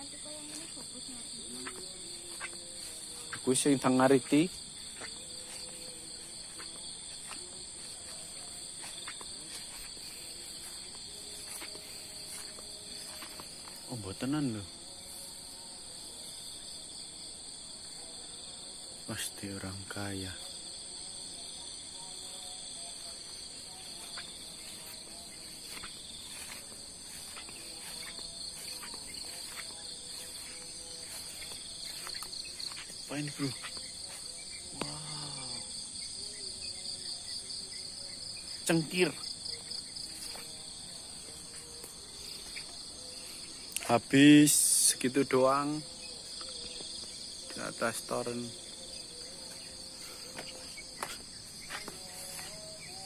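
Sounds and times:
footsteps through grass: 0.0 - 14.3, 21.8 - 35.8, 38.6 - 45.6, 46.5 - 53.0
insects trilling: 0.0 - 53.0.

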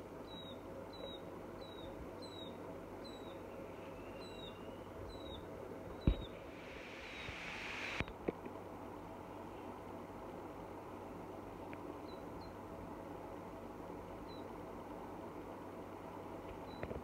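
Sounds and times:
bird chick peeping: 0.2 - 6.4
hiss: 6.0 - 8.1.

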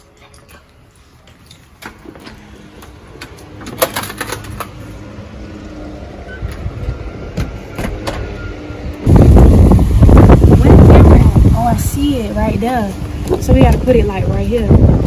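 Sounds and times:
low rumble: 8.4 - 15.0.

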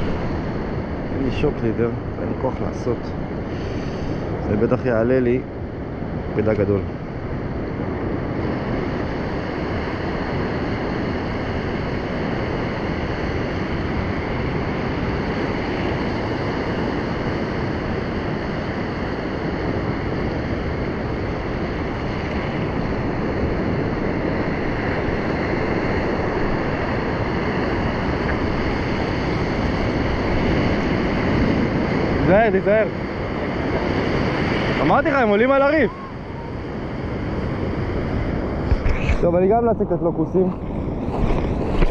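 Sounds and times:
wind on microphone: 0.0 - 41.9
waves breaking on rocks: 40.4 - 41.9.

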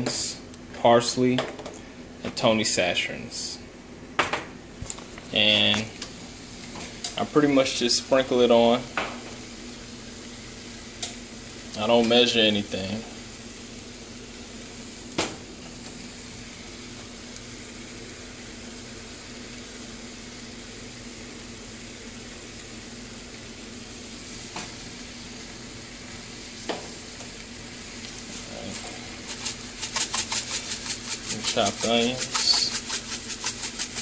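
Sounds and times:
fish sizzling on grill: 6.3 - 34.0.

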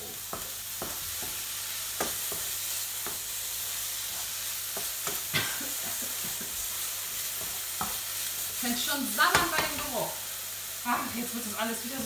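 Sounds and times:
beef sizzling in a frying pan: 0.0 - 12.0
wooden spoon knocking a pan: 9.3 - 9.9.

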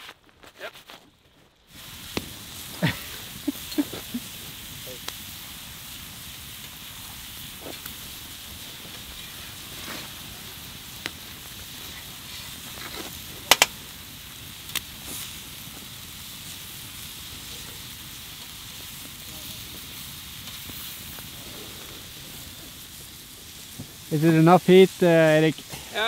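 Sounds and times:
wood fire cracks: 0.0 - 26.0
meat and onions sizzling: 1.6 - 26.0.

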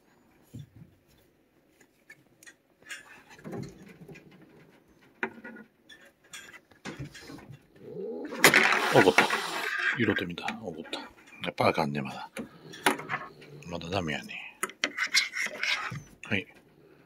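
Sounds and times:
plastic rake scraping fur: 8.3 - 10.0.

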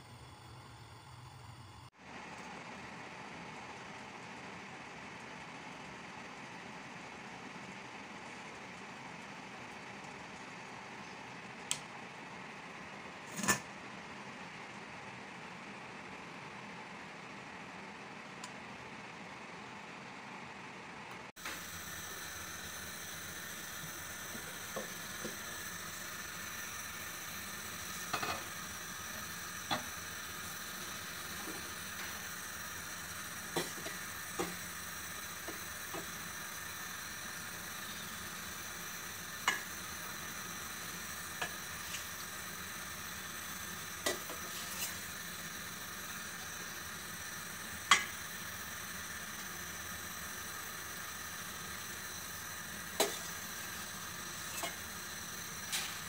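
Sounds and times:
steady hiss: 21.4 - 56.0.

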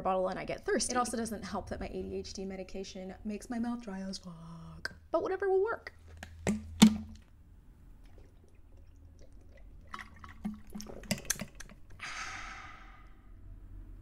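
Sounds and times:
bottle clicking: 6.2 - 7.2
knocks on water bottle: 6.5 - 7.2
breathy exhale: 12.0 - 13.6.

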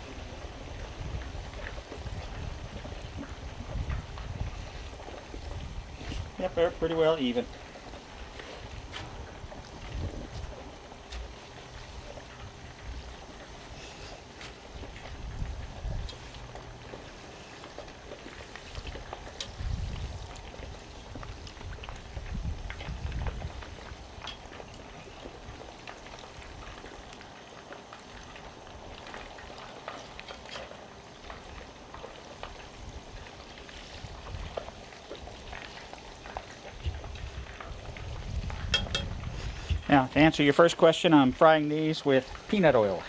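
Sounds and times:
wind buffeting microphone: 0.0 - 6.9, 7.8 - 13.8, 14.6 - 17.3, 18.0 - 26.8, 32.7 - 35.5, 36.2 - 39.9
oil sizzling with pops: 0.0 - 43.0.

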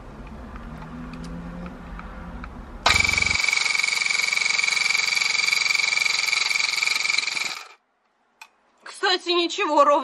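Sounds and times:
tufting gun buzzing: 2.9 - 7.8.

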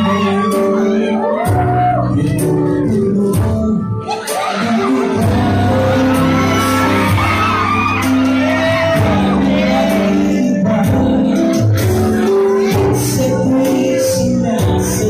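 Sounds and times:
shouts and whoops: 0.0 - 2.4, 4.0 - 10.1
backing track: 0.0 - 15.0
man singing into a microphone: 0.0 - 15.0.

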